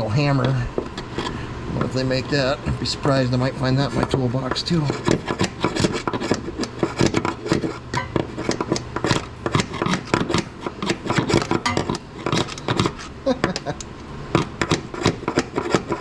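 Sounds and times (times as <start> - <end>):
fan humming: 0.0 - 16.0
metal-on-metal taps and clicks: 10.3 - 13.7.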